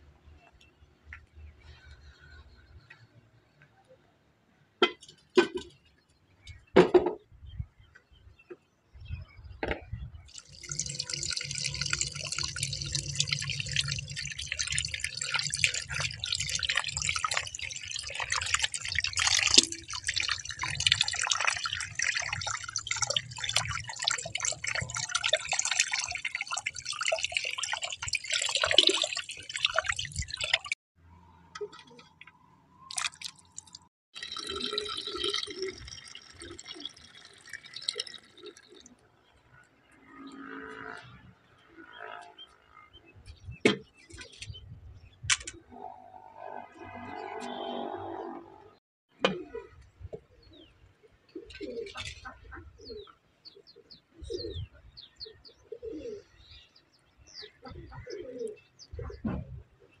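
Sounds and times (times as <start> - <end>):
water splashing and dripping: 10.3 - 30.8, 31.6 - 39.0
doves cooing: 51.3 - 53.2, 55.5 - 56.4, 57.6 - 59.2.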